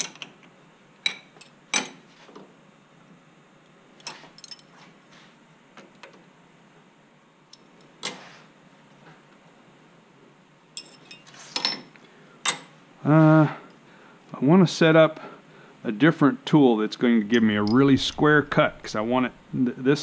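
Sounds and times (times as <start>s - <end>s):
metal tools clicking and clinking: 10.8s - 12.7s, 17.6s - 18.9s.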